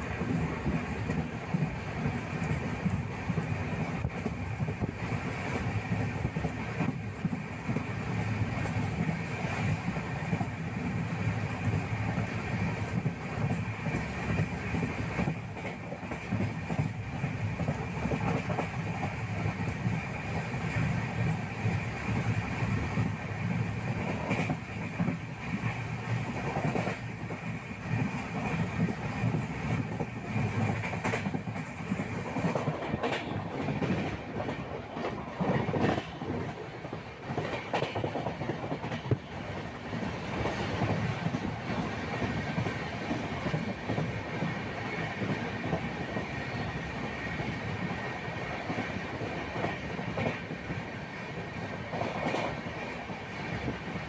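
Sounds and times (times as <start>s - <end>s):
clacks over rail joints: 0.0s - 54.0s
train rumble inside carriage: 0.0s - 54.0s.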